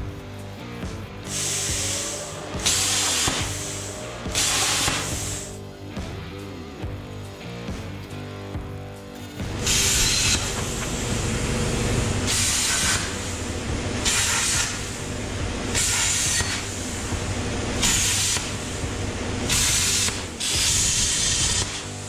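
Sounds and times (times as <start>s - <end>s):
angle grinder grinding metal: 1.3s - 5.6s, 9.4s - 22.0s.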